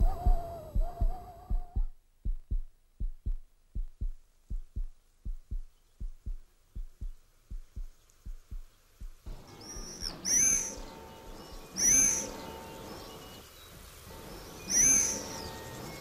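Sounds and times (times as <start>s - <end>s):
heartbeat thumps: 0.0s - 12.2s.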